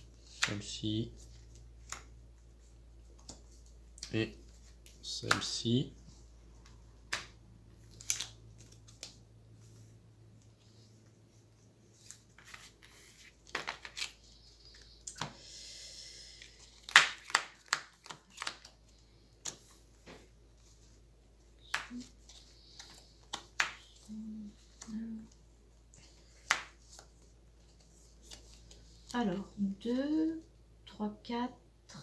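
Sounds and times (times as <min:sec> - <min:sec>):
cards clicking and slapping on table: 0:07.1 - 0:07.4, 0:13.5 - 0:14.2, 0:16.8 - 0:18.8, 0:19.4 - 0:20.2, 0:21.6 - 0:24.0, 0:26.4 - 0:27.1
cards riffle shuffling: 0:11.9 - 0:15.3, 0:16.4 - 0:19.9.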